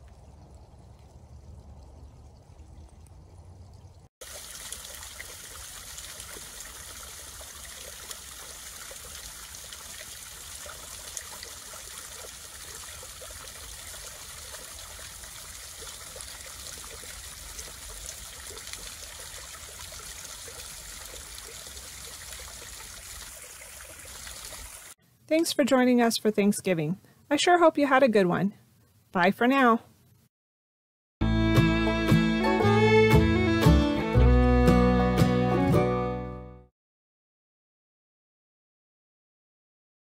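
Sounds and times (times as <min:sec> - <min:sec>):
water trickling down small waterfall: 0:00.0 - 0:25.0.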